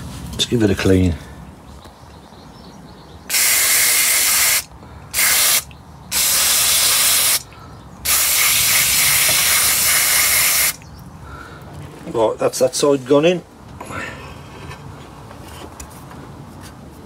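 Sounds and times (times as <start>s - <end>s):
aerosol spray hissing: 3.3s - 7.4s, 8.1s - 10.8s.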